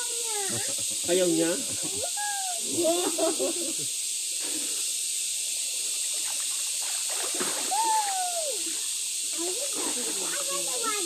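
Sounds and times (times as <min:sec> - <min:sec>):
voices: 0:00.0 - 0:03.9, 0:07.7 - 0:11.0
water splashing in pool: 0:05.7 - 0:08.8
drawn-out falling vocal exclamation: 0:07.7 - 0:08.8.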